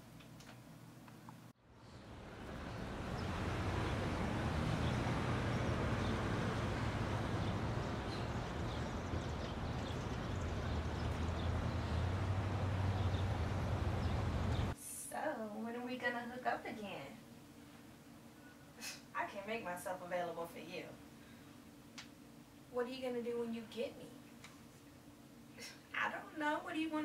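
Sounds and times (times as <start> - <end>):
low rumble of traffic: 1.6 - 14.8.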